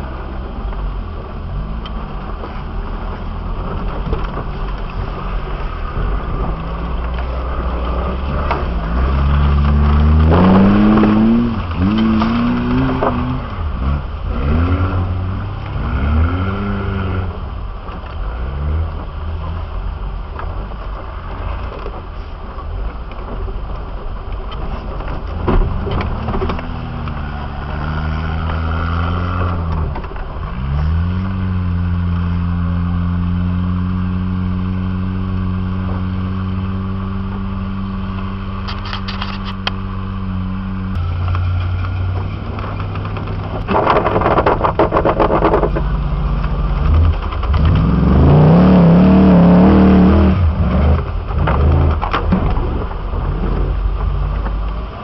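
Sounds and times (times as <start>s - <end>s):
vehicle engine revving: 1.4s - 19.9s, 25.4s - 55.0s.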